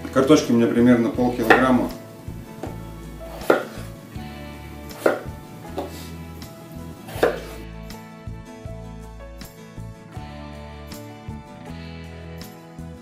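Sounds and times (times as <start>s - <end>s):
soft background music: 0.0s - 13.0s
knife knocking on cutting board: 1.4s - 1.9s, 2.6s - 3.9s, 5.0s - 6.0s, 7.1s - 7.6s.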